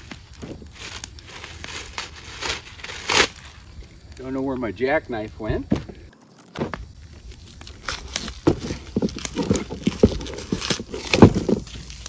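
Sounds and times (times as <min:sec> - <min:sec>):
cardboard and packing rustling: 0:05.7 - 0:12.0.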